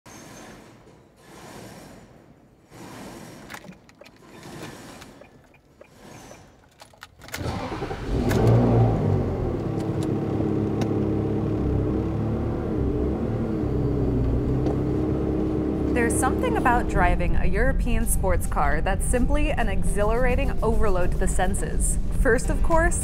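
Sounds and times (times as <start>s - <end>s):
car engine starting and idling: 3.5s - 23.0s.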